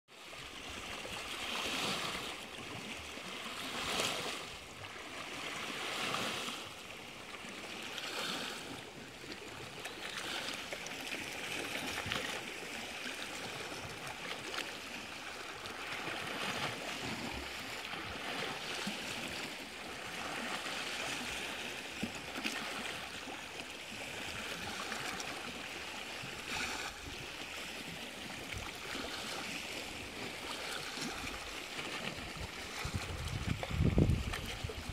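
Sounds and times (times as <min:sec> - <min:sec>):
small waves lapping on rock: 0:00.2 - 0:34.9.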